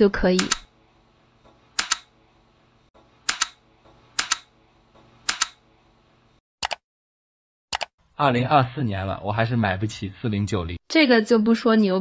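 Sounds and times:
keyboard space bar clicks: 1.8 - 2.1, 5.3 - 5.6.

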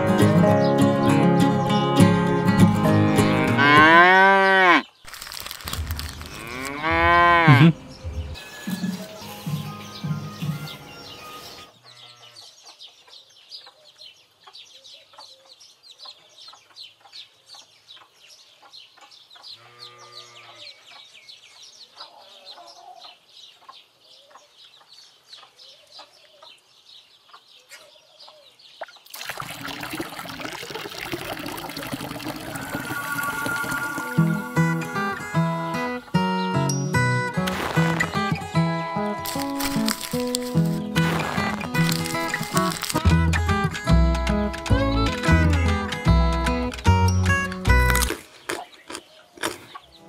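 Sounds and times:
guitar music: 0.0 - 4.0, 32.7 - 48.1
high chirps: 32.0 - 37.2.

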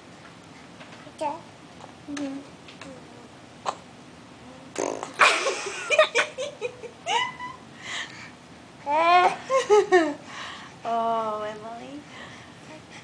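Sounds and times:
baby blowing a raspberry: 4.8 - 5.2
laughter: 5.2 - 7.6, 9.4 - 10.2.

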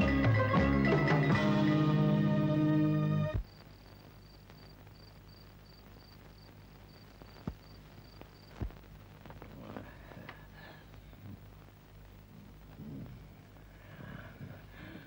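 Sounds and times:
faint low hum: 3.3 - 15.0
cricket chirping: 3.4 - 8.7
dull thumps: 8.5 - 9.4.

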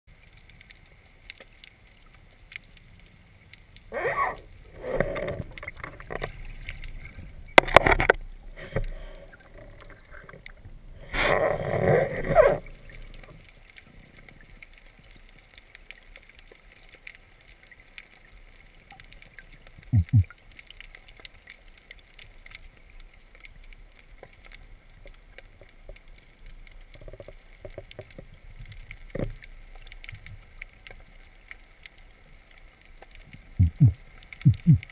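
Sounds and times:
underwater water rushing: 0.1 - 34.9
steady underwater hiss: 0.2 - 34.9
low hum: 33.6 - 34.8.

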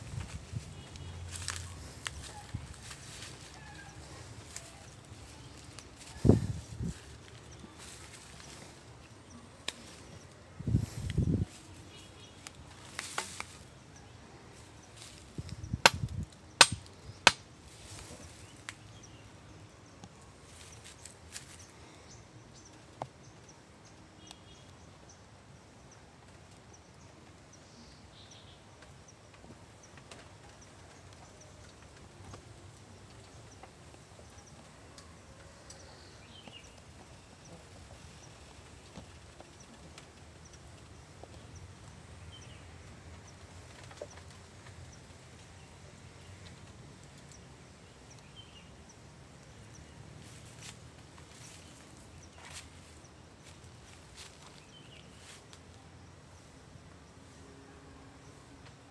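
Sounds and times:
cracks in dry bamboo litter: 0.0 - 19.2, 19.9 - 22.0, 28.1 - 48.3, 49.5 - 55.8.

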